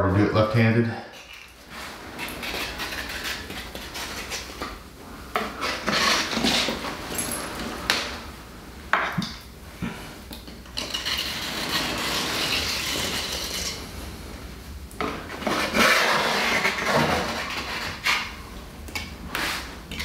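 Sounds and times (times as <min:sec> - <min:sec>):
trowel scraping: 0:01.1 - 0:04.8, 0:05.4 - 0:07.4, 0:10.8 - 0:13.8, 0:15.3 - 0:18.4, 0:19.3 - 0:20.0.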